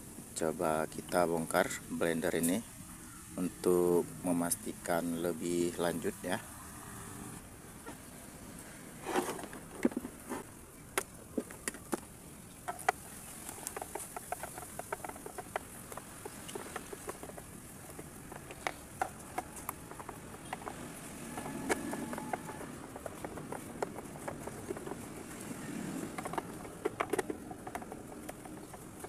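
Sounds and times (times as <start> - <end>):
screwdriver clicking on plastic: 26.0 - 29.0.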